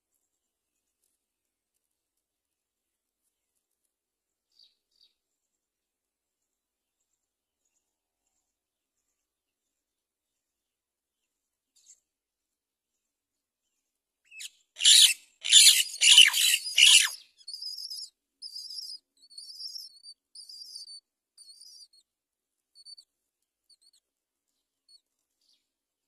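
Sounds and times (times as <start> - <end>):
bird harsh squawks: 14.4 - 17.2
nestlings begging cheeps: 14.4 - 21.9.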